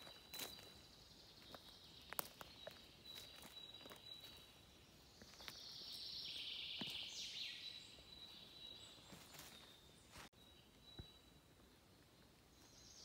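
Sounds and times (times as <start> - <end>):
footsteps on dry leaves: 0.0 - 4.6, 9.0 - 10.3.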